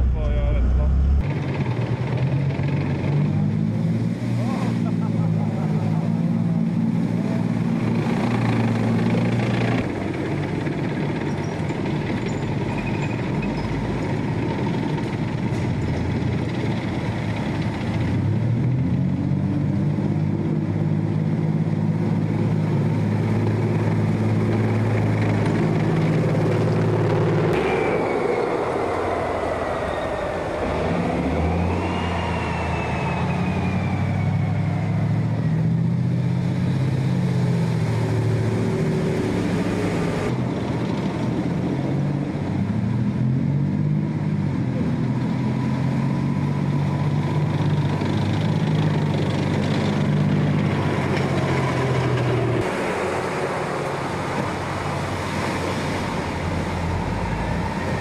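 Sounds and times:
high whine: 0.0 - 1.8
diesel engine running: 0.0 - 3.8
water rushing and splashing: 0.0 - 58.0.

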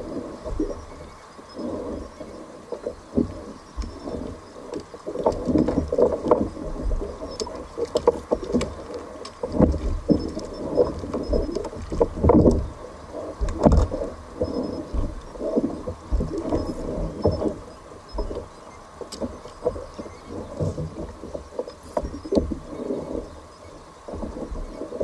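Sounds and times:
low knocks and splashes: 0.0 - 25.0
water slapping against hull: 0.0 - 25.0.

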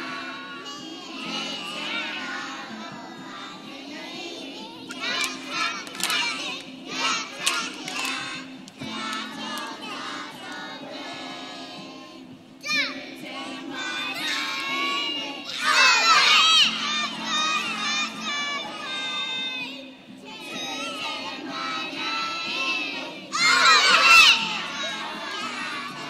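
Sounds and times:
children shouting and singing: 0.0 - 26.0
crowd noise: 0.0 - 26.0.

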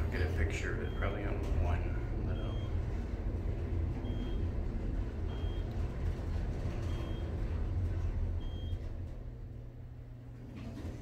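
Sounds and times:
elevator ride rumble: 0.0 - 11.0.

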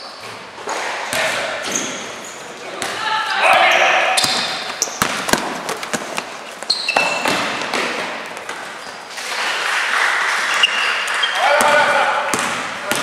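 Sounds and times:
sneaker squeaks on floor: 1.2 - 2.5, 3.6 - 7.7, 10.4 - 11.8
basketball bouncing: 4.2 - 9.4, 11.6 - 13.0.

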